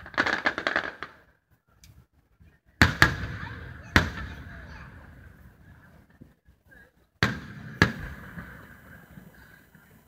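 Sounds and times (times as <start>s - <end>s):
firework shells booming: 0.0s - 1.3s, 2.8s - 5.2s, 7.2s - 9.6s.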